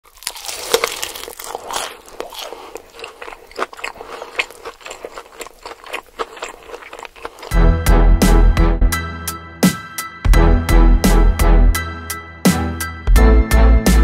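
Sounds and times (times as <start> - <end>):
person chewing crunchy food: 0.0 - 7.6
wet mouth clicks: 2.1 - 7.5.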